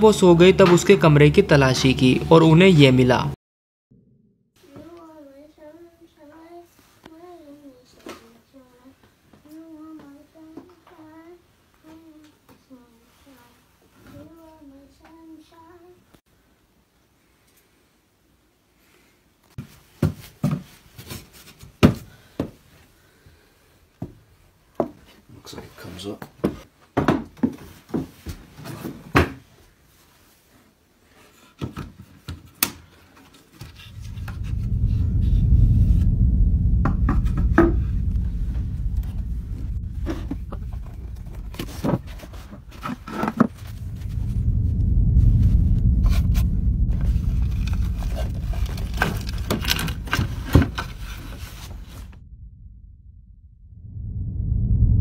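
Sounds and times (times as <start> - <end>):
deep low drone: 33.7 - 55.0.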